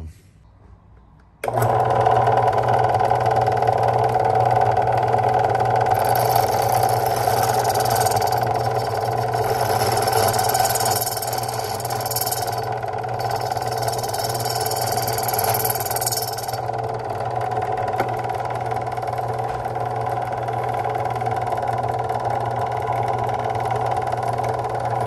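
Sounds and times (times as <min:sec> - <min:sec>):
electric motor hum: 0:01.4 - 0:25.0
high grinding hiss: 0:06.0 - 0:16.6.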